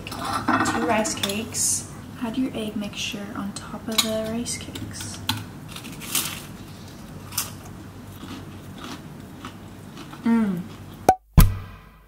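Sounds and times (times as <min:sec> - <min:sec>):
person chewing food: 0:06.7 - 0:11.0
person humming mmm: 0:10.2 - 0:10.8.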